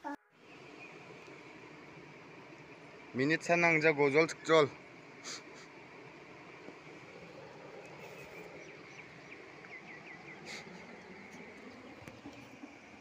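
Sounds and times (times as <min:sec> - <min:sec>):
background hiss: 0:00.4 - 0:13.0
bird chirps: 0:00.5 - 0:01.4, 0:07.8 - 0:12.6.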